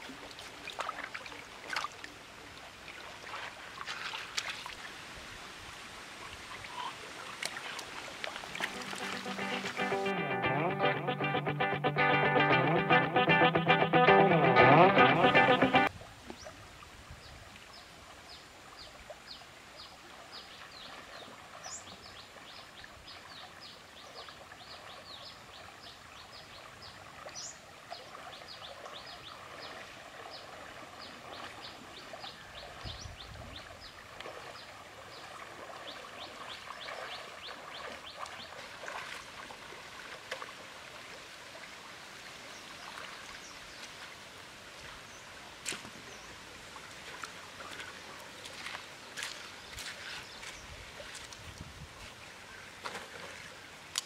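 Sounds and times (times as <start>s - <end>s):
splashing steps wading: 0.0s - 2.2s, 2.8s - 4.9s, 6.7s - 10.2s, 33.9s - 41.6s, 42.8s - 54.0s
river water running over stones: 0.0s - 10.1s, 15.3s - 54.0s.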